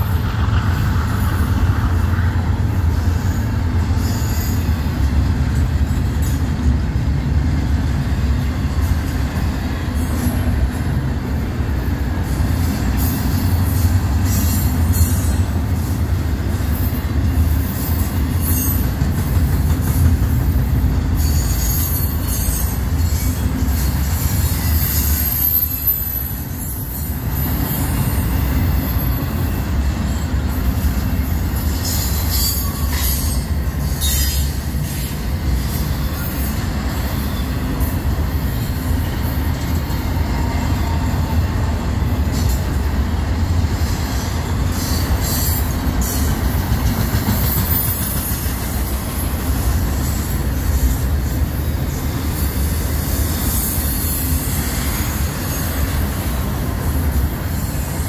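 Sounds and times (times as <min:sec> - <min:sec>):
freight train wheels rumbling: 0:00.0 - 0:58.0
high wheel squeals: 0:16.6 - 0:19.0, 0:21.1 - 0:41.5.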